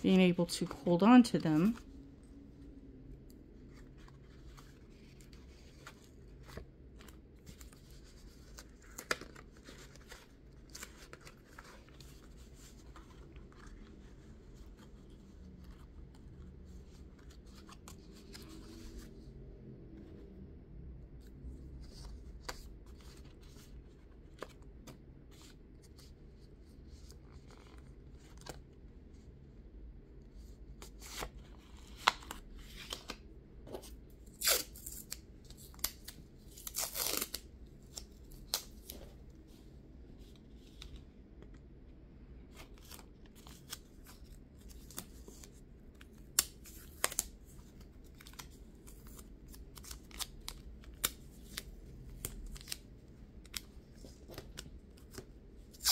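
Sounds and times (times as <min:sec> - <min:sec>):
tape tearing: 0:34.4 - 0:35.1, 0:36.6 - 0:37.4.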